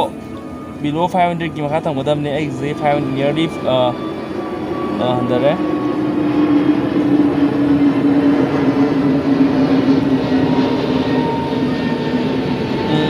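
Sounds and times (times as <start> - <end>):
pond aerator drone: 0.0 - 13.0.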